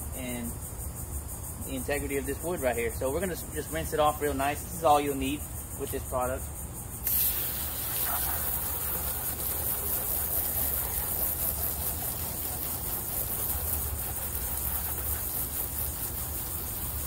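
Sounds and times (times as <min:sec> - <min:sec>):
hose spraying water on fence: 0:07.0 - 0:17.0.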